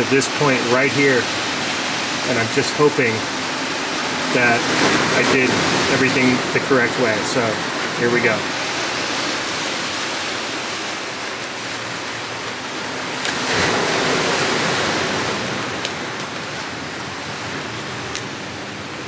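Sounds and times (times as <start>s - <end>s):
steady hiss: 0.0s - 18.8s.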